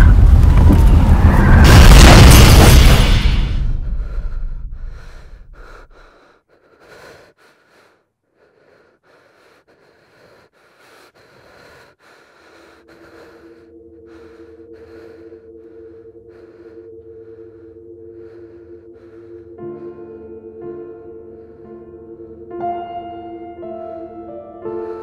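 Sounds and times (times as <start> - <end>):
loud boom: 0.6 - 4.7
man panting: 4.2 - 20.3.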